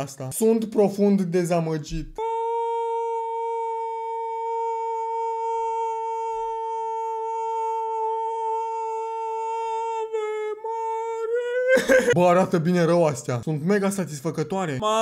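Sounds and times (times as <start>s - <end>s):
man singing a long high note: 2.2s - 12.2s.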